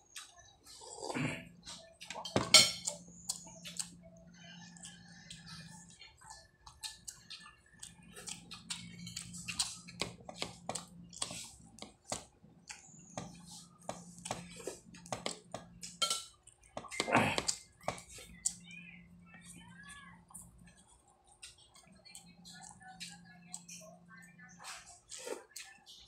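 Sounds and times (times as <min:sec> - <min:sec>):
chewing and mouth smacks: 0:00.1 - 0:00.8, 0:02.8 - 0:04.0, 0:04.8 - 0:18.6.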